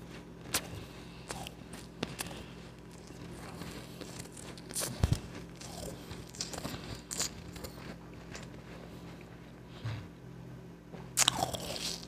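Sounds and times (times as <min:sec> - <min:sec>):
crunching of ice being eaten: 0:00.5 - 0:08.6, 0:11.2 - 0:12.0.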